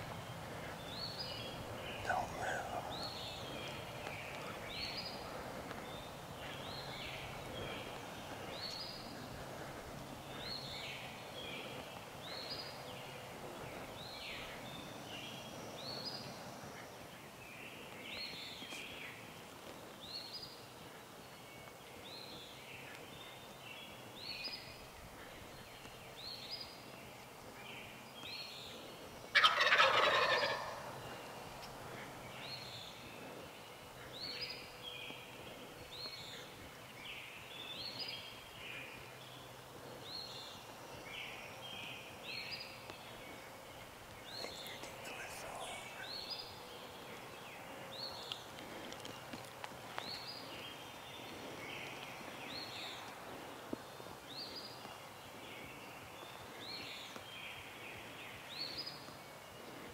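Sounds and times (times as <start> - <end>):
small birds singing: 0.0 - 59.9
turkey gobbling: 29.3 - 31.0.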